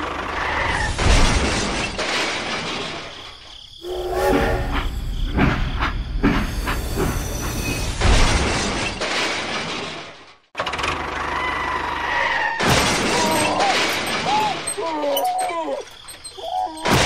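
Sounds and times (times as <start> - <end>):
toy bricks crashing and spilling: 12.6 - 14.9
toy train clattering on tracks: 12.9 - 17.0.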